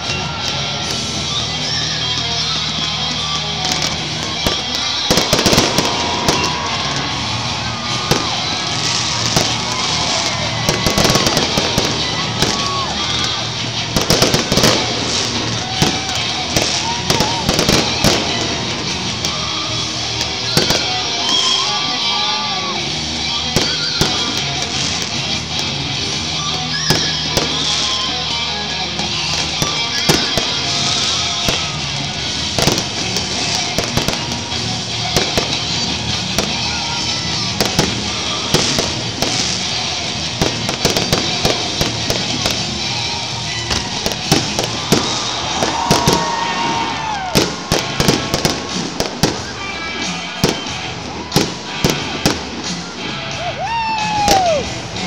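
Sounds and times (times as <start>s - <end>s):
fireworks bangs and crackles: 0.0s - 55.0s
music playing: 0.0s - 55.0s.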